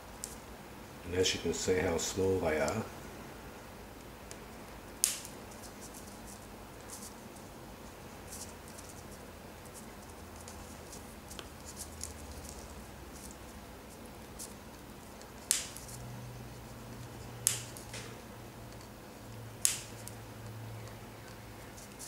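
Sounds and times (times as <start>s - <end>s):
faint handling ticks: 4.0s - 22.0s.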